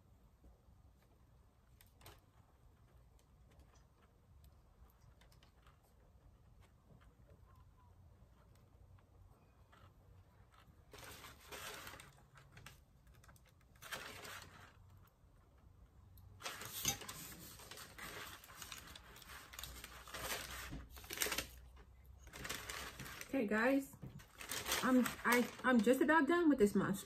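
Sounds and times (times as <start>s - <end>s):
hands rustling and clicking candies: 16.3s - 23.4s, 24.0s - 26.2s.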